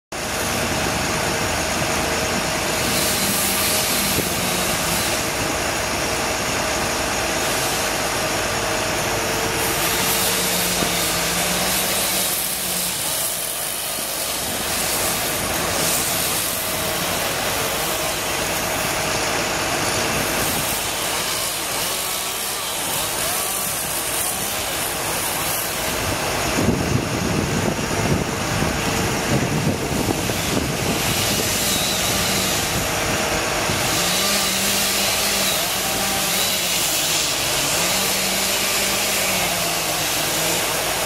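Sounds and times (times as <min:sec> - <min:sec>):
even hiss: 0:00.2 - 0:27.0
machinery engine idling: 0:00.2 - 0:41.0.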